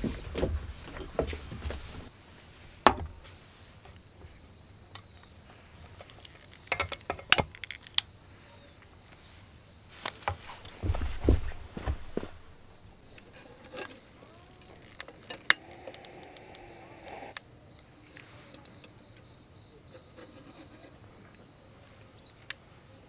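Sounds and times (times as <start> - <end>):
high insect chirring: 2.9 - 23.0
metal and glass clicks: 6.2 - 8.0.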